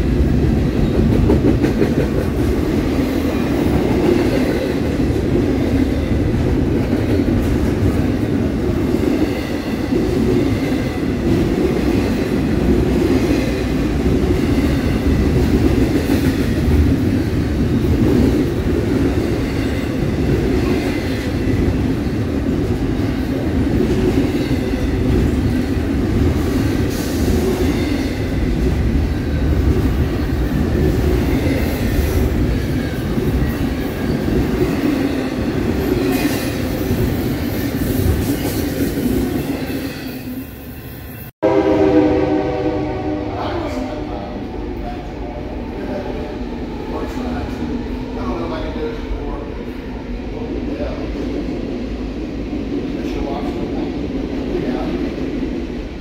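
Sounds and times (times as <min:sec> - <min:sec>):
freight train rumbling past: 0:00.0 - 0:56.0.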